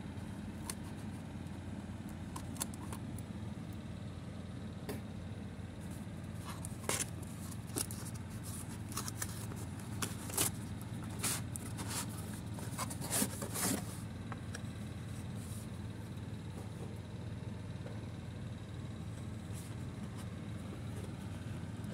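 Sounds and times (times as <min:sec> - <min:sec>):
steady low hum: 0:00.0 - 0:21.9
cardboard scraping and tapping: 0:06.5 - 0:14.0.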